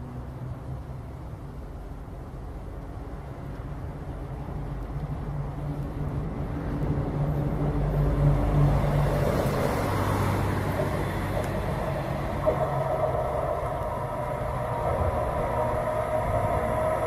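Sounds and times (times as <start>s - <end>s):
electric locomotive humming: 0.0s - 17.0s
freight train rumble: 0.0s - 17.0s.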